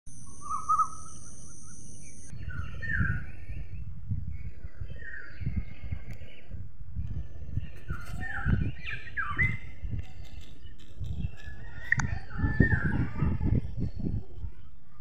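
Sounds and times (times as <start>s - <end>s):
thin high steady tone: 0.1s - 3.8s
sparrow chirping: 0.2s - 3.2s.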